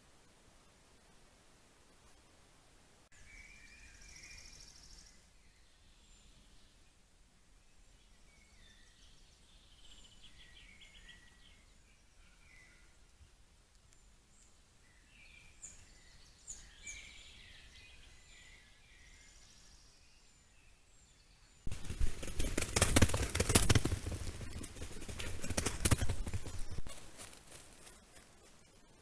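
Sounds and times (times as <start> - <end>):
faint birdsong chirps: 3.1 - 29.0
animal trotting through dry leaves: 21.7 - 28.7.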